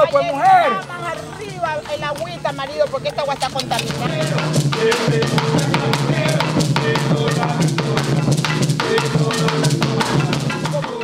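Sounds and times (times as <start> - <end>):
fast drumming: 1.8 - 11.0
marimba music: 3.3 - 11.0
deep bass drum strokes: 3.9 - 10.8.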